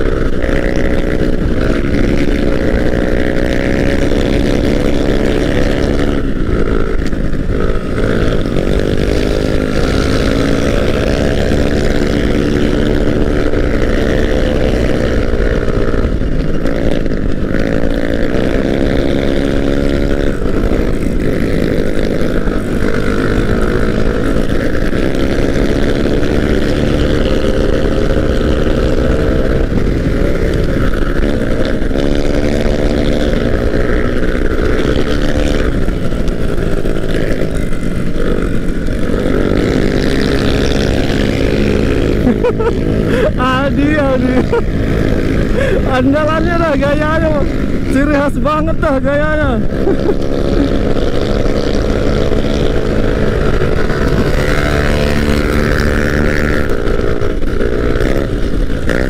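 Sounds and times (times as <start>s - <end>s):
scooter engine revving: 0.0s - 59.0s
wind rushing over microphone: 0.0s - 59.0s.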